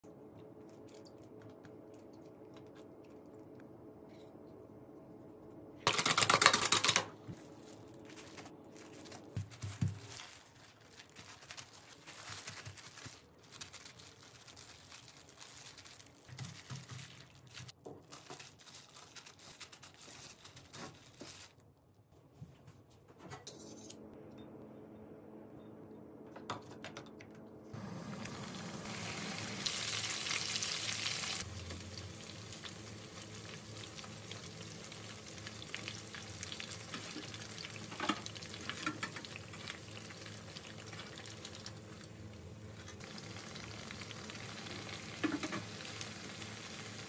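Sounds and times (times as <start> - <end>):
low steady hum: 0.0 - 5.9, 22.2 - 47.0
loud noisy crinkling: 5.9 - 21.6
plastic glove rustling: 5.9 - 22.6, 28.4 - 47.0.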